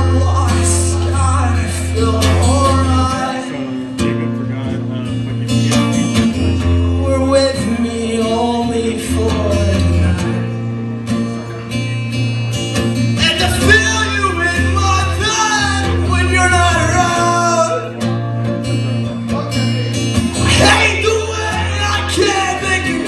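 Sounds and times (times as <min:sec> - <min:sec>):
guitars: 0:00.0 - 0:23.0.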